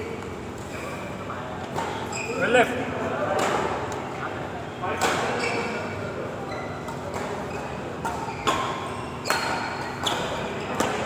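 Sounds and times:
shuttlecock hit by racket: 8.0s - 11.0s.

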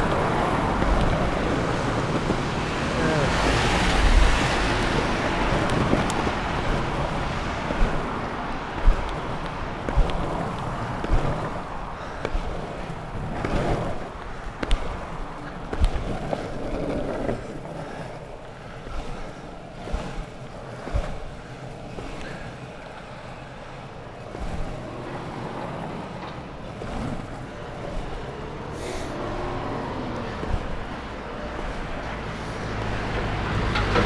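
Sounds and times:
wind on microphone: 0.0s - 18.0s
skateboard wheels rumbling on asphalt: 0.0s - 34.0s
wheels knocking over cracks: 0.0s - 34.0s.

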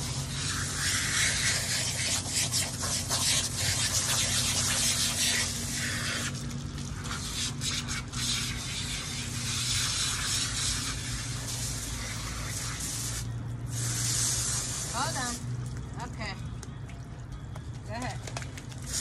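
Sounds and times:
water splashing on concrete: 0.0s - 13.2s, 13.8s - 19.0s
garden hose spraying water: 0.0s - 16.4s, 18.7s - 19.0s.

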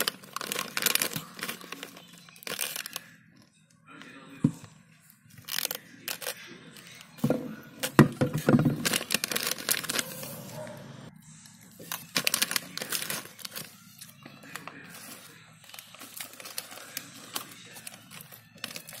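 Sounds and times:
plastic wrapper crinkling: 0.0s - 3.2s, 5.3s - 7.2s, 7.8s - 10.4s, 11.8s - 19.0s.

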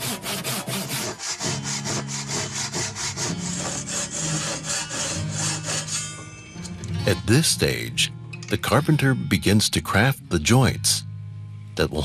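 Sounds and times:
hand saw cutting wood: 0.0s - 6.3s.

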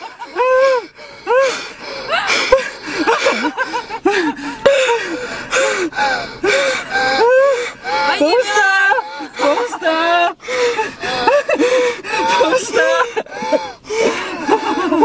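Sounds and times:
wheezing and gasping: 0.0s - 9.7s, 10.3s - 15.0s
people laughing hard: 0.0s - 15.0s.

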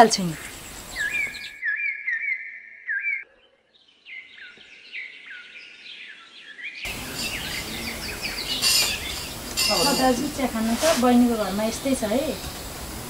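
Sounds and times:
outdoor background hiss: 0.0s - 1.6s, 6.9s - 13.0s
birds chirping: 0.0s - 13.0s.

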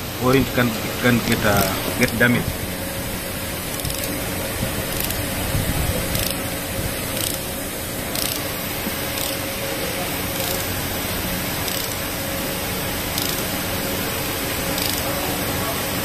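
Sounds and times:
ratchet wrench clicking: 3.7s - 4.2s, 4.9s - 5.2s, 6.1s - 6.4s, 7.1s - 7.5s, 8.1s - 8.5s, 9.1s - 9.5s, 10.3s - 10.8s, 11.6s - 12.1s, 13.1s - 13.5s, 14.7s - 15.2s.

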